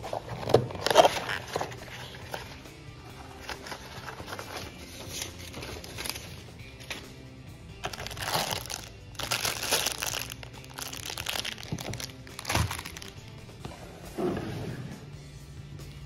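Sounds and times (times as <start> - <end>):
background music: 0.0 - 16.0
plastic bag crinkling: 7.8 - 13.3.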